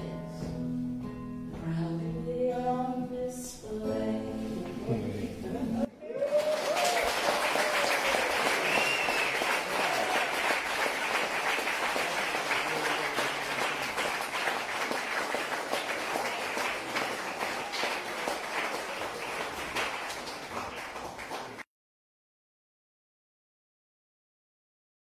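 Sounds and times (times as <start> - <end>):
audience applauding: 6.0 - 21.6.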